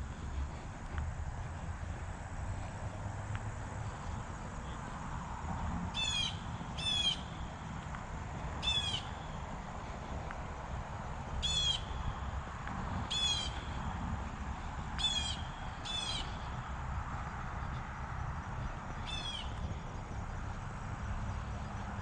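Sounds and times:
low steady background rumble: 0.0 - 22.0
bird calls: 6.0 - 7.4, 8.6 - 9.3, 11.4 - 12.1, 13.1 - 13.8, 15.0 - 16.6, 18.6 - 19.7.

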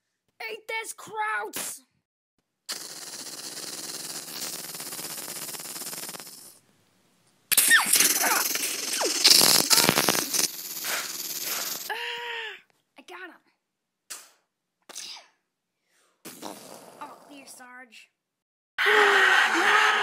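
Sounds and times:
steady hiss: 2.7 - 6.6, 7.5 - 11.9.

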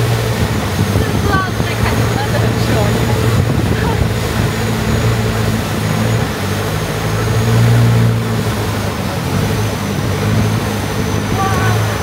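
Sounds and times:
motorboat engine running: 0.0 - 12.0.

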